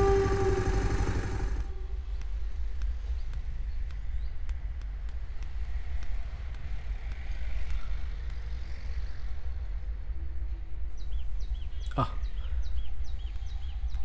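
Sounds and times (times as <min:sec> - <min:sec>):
vehicle engine rumbling: 0:00.0 - 0:03.9.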